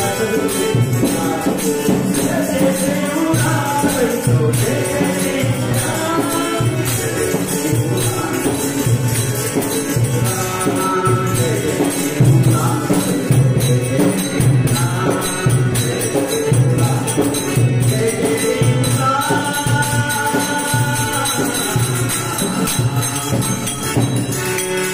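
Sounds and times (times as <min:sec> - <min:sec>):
harmonium: 0:00.0 - 0:24.9
man singing devotional song: 0:00.0 - 0:24.9.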